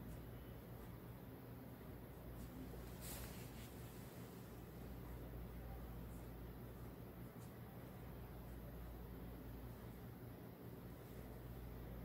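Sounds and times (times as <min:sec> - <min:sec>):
steady low hum: 0:00.0 - 0:12.0
faint hiss: 0:02.2 - 0:07.9.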